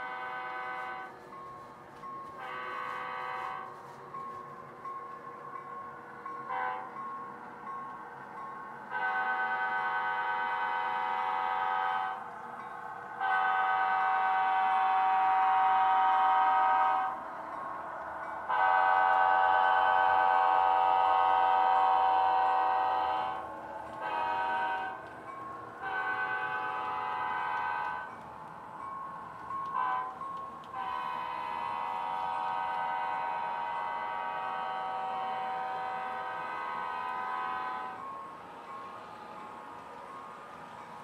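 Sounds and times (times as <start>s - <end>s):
model train diesel horn: 0.0s - 1.2s, 2.2s - 3.9s, 6.4s - 7.0s, 8.9s - 12.3s, 13.2s - 17.2s, 18.4s - 25.2s, 25.8s - 28.2s, 29.7s - 38.1s.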